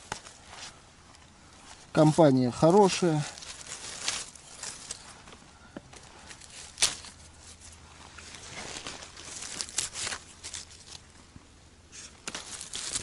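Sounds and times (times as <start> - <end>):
leaf litter crackling and rustling: 0.0 - 11.3, 11.9 - 13.0.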